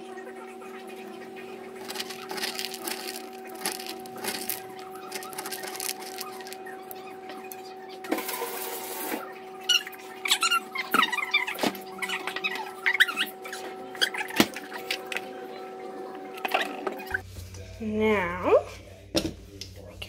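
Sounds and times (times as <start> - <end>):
steady hum: 0.0 - 8.0
dog food clicks and crackles: 1.8 - 6.6.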